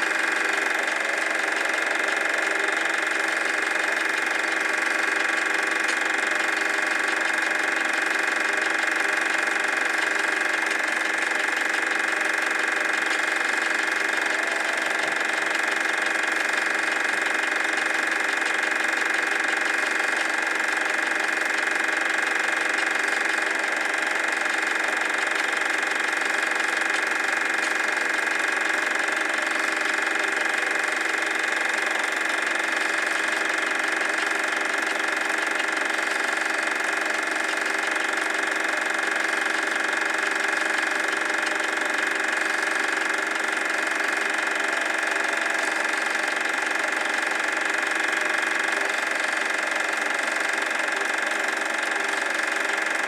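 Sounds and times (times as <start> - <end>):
film projector whirring: 0.0 - 53.0
high steady hum: 0.0 - 53.0.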